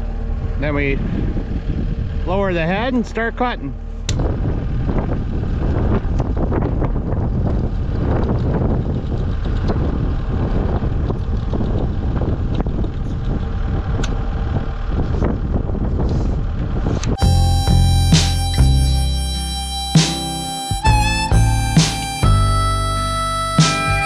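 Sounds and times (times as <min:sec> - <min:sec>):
sawmill engine running: 0:17.0 - 0:24.0.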